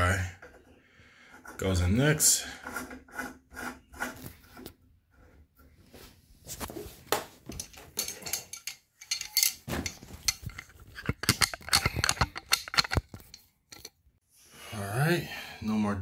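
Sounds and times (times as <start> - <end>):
metal parts clinking: 7.5 - 13.9
phone handling clicks and knocks: 11.0 - 13.9.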